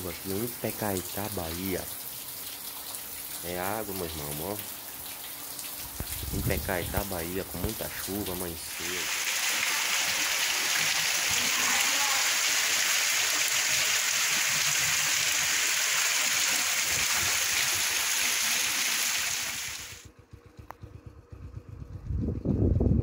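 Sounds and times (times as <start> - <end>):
heavy rain pouring: 5.8 - 20.0.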